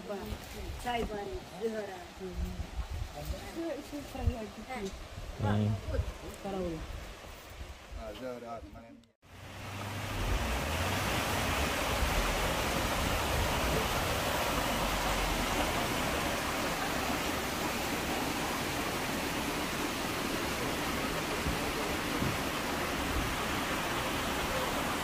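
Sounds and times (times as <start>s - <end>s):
waterfall rushing: 9.3s - 25.0s.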